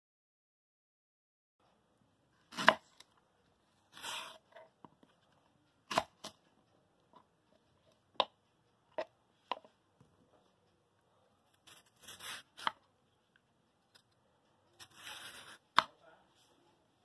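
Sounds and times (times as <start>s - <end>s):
knife cutting through banana: 2.5s - 3.1s, 3.9s - 4.6s, 5.8s - 6.4s, 11.5s - 12.9s, 14.8s - 15.9s.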